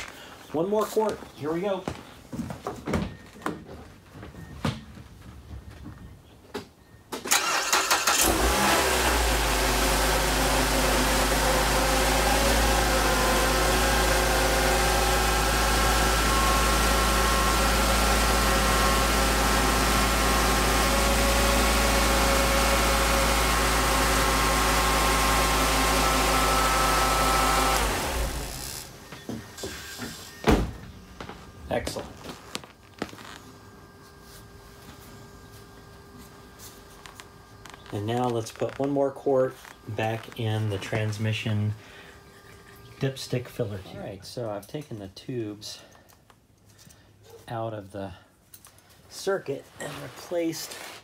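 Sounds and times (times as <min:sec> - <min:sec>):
car engine starting and idling: 0:07.2 - 0:29.6.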